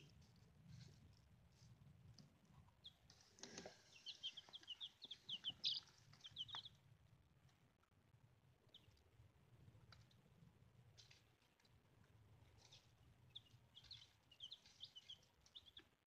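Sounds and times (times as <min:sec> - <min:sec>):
chicks peeping: 0:02.2 - 0:06.9, 0:08.6 - 0:10.3, 0:10.9 - 0:16.0.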